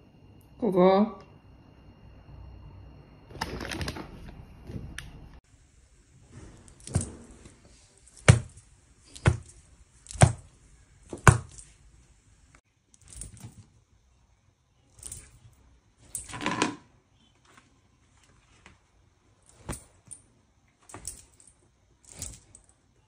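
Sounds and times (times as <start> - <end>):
rustling handling noise: 6.0 - 13.8, 14.9 - 22.8.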